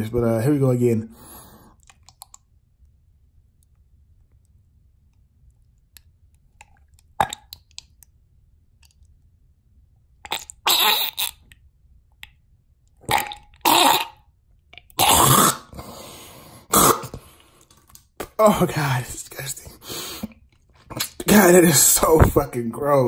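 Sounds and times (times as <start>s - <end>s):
man gagging and hacking: 18.2s - 19.8s.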